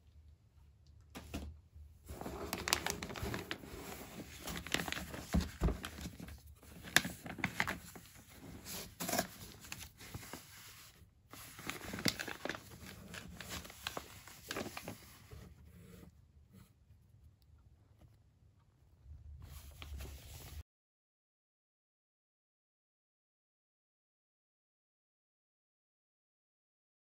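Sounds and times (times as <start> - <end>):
paper and cardboard rustling: 2.1 - 16.7, 19.4 - 20.6.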